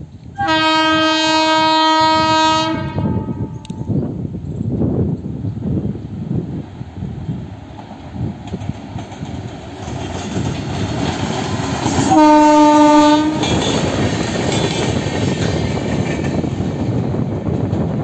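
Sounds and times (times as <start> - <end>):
train wheels rumbling on rails: 0.0 - 18.0
locomotive horn blast: 0.4 - 3.6, 12.1 - 13.9.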